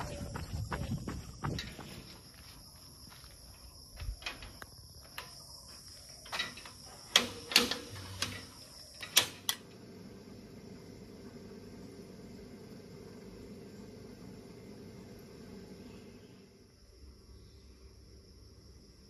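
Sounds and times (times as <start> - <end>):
insect trill: 0.0 - 19.0
metal gate clanking and rattling: 4.2 - 5.4, 6.2 - 9.6.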